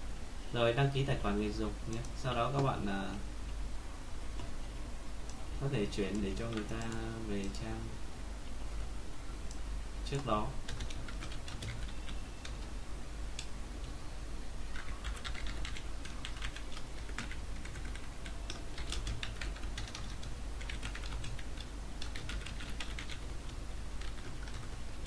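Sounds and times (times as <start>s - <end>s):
low steady hum: 0.0s - 25.0s
computer keyboard typing: 6.1s - 7.6s, 10.1s - 12.7s, 14.7s - 24.8s.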